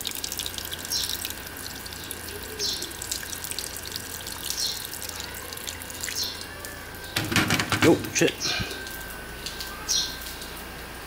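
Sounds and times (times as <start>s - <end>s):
water dripping onto concrete: 0.0s - 11.0s.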